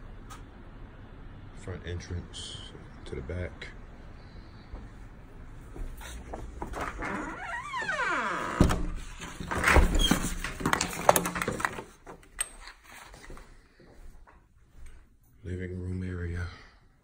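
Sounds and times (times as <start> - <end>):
door heavy thud: 8.4 - 10.4.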